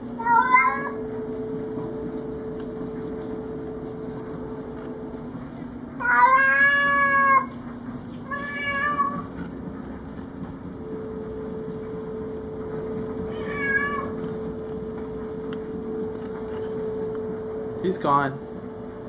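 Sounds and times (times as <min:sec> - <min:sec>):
cat yowling: 0:00.2 - 0:01.0, 0:06.0 - 0:07.5, 0:08.3 - 0:09.3, 0:13.3 - 0:14.2.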